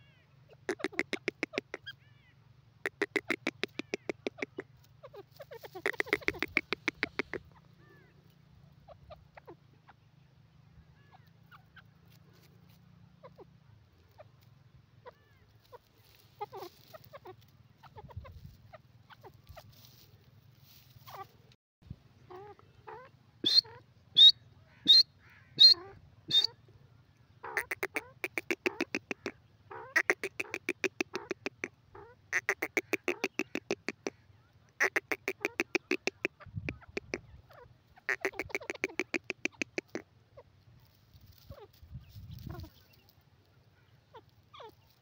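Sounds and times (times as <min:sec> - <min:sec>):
bird clucking: 0:00.0 - 0:02.0, 0:02.8 - 0:10.0, 0:11.0 - 0:21.5, 0:22.2 - 0:26.8, 0:27.4 - 0:40.6, 0:41.2 - 0:45.0
sharp high bird calls: 0:00.0 - 0:08.2, 0:22.3 - 0:26.6, 0:27.4 - 0:40.0
chattering bird calls: 0:00.1 - 0:10.1, 0:15.0 - 0:20.1, 0:22.2 - 0:26.6, 0:27.4 - 0:40.5.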